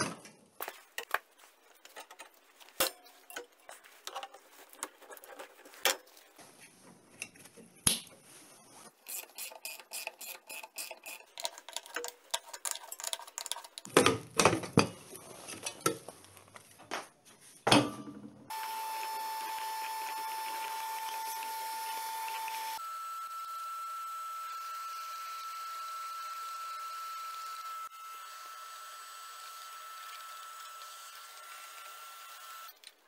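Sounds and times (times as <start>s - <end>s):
metallic clicks and scrapes: 1.7s - 6.4s, 9.0s - 13.9s.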